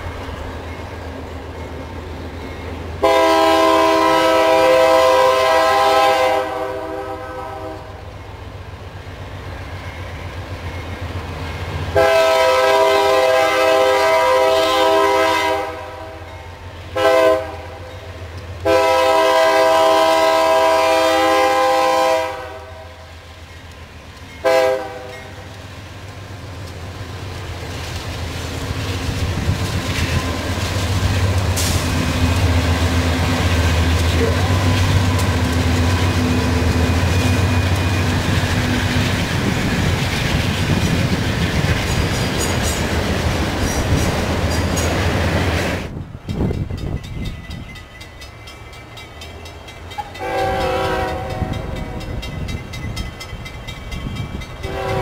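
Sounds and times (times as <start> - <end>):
wheels rumbling on rails: 0.0 - 55.0
locomotive air horn: 3.0 - 8.0, 11.9 - 16.2, 16.9 - 17.8, 18.6 - 23.0, 24.4 - 25.4, 50.2 - 52.0, 54.6 - 55.0.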